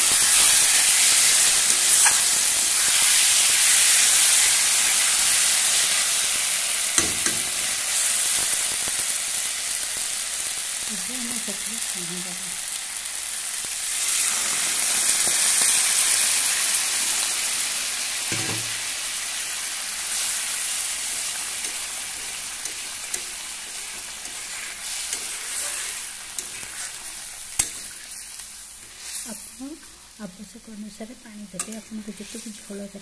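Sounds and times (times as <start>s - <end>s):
water sizzling in hot pan: 0.0s - 33.0s.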